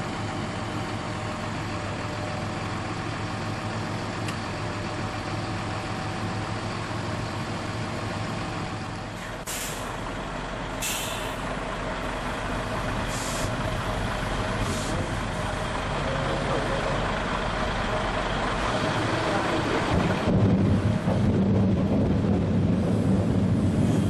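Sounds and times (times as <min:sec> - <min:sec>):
heavy machinery running: 0:00.0 - 0:24.0
tractor diesel engine running: 0:00.0 - 0:24.0
air brakes hissing: 0:09.1 - 0:10.0, 0:10.8 - 0:11.5, 0:13.0 - 0:13.6, 0:14.6 - 0:15.1.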